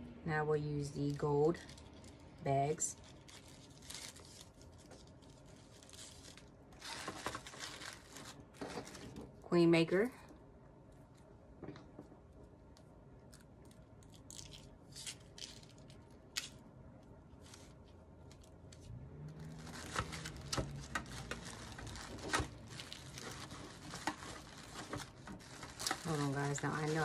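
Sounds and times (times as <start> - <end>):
bag and tissue paper rustling: 1.1 - 9.2, 19.4 - 27.0.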